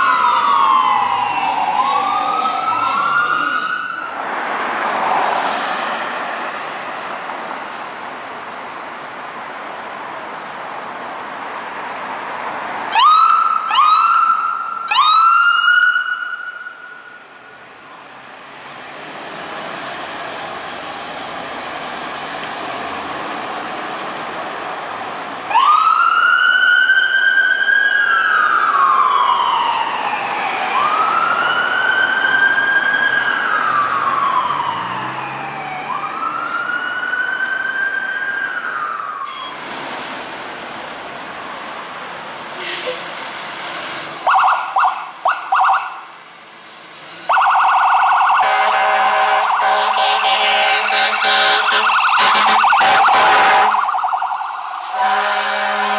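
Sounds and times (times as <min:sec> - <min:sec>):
fire truck siren wailing: 0:00.0 - 0:06.8, 0:12.8 - 0:17.7, 0:19.3 - 0:39.9, 0:44.1 - 0:46.4, 0:47.0 - 0:55.9
traffic noise: 0:00.0 - 0:55.9.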